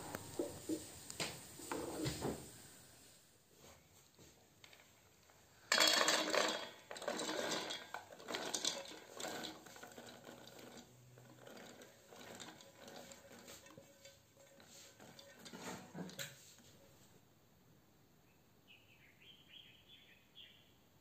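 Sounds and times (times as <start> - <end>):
nuts clattering into metal bowl: 5.5 - 16.4.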